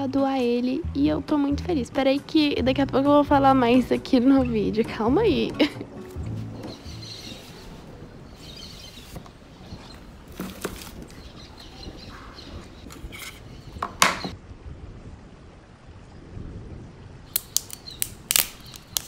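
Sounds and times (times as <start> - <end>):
cardboard box scraping and rustling: 10.3 - 11.1.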